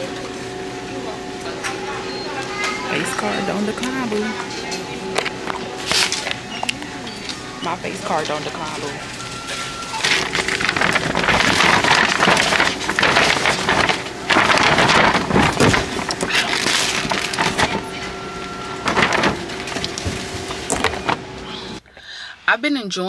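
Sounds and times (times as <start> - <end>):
paper bag rustling and crinkling: 5.1 - 6.4, 7.8 - 21.8.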